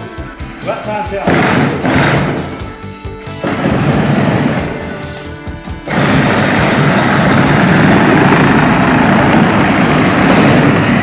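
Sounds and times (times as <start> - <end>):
toy truck electric motor drone: 5.8 - 11.0
plastic wheels rolling on concrete: 5.9 - 11.0.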